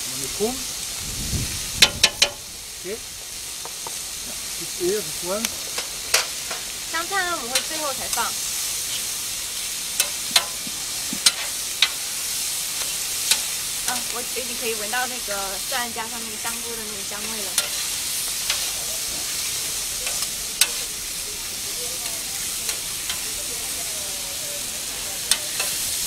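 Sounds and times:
vegetables sizzling on griddle: 0.0 - 26.0
metal spatulas clicking and scraping: 10.0 - 10.6, 17.2 - 18.8, 20.0 - 20.9, 25.2 - 25.9.

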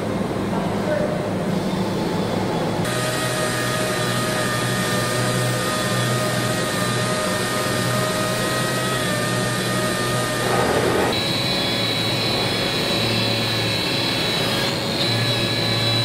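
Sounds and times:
factory machinery humming: 0.0 - 16.0
high whining machine tones: 1.4 - 16.0
broad machinery rush: 9.4 - 15.6.

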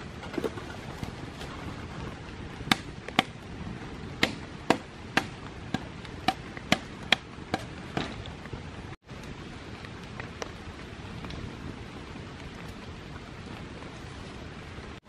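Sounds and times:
rain hissing: 0.0 - 15.0
machete chopping bamboo: 2.7 - 3.4, 4.2 - 8.2.

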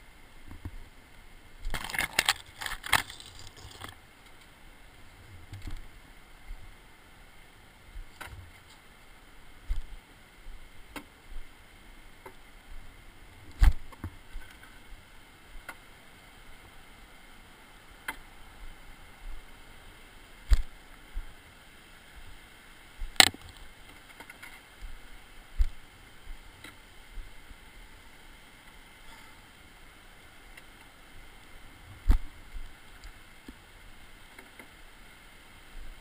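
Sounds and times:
faint steady hiss: 0.0 - 36.0.

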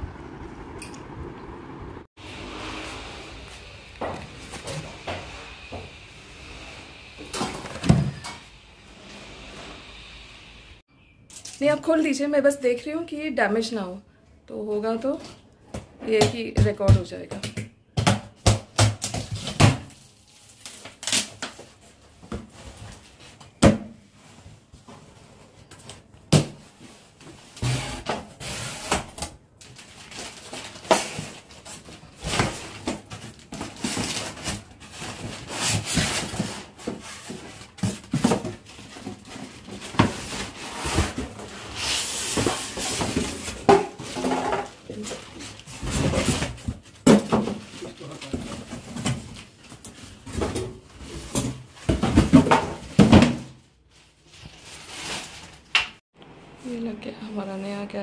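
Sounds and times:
plastic rustling: 19.1 - 56.0.

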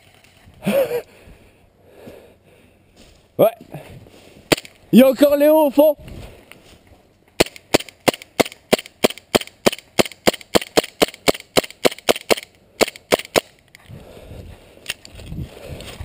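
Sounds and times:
airsoft pistol shots: 7.4 - 13.5.

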